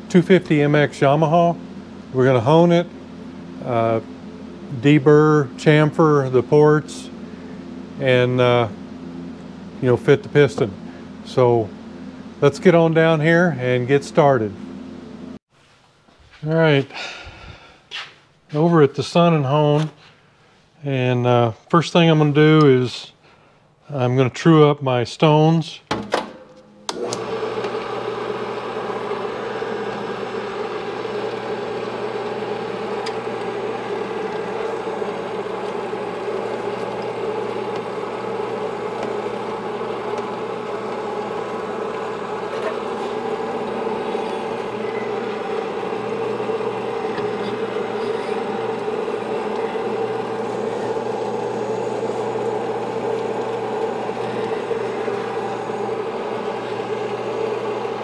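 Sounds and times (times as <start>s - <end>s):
honing machine humming: 26.3s - 58.0s.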